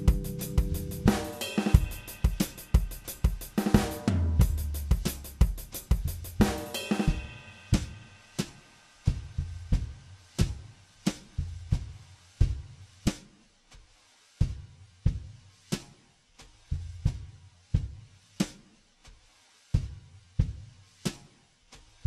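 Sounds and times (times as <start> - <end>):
held bass notes: 0.0 - 1.9
drum kit beat: 0.0 - 22.0.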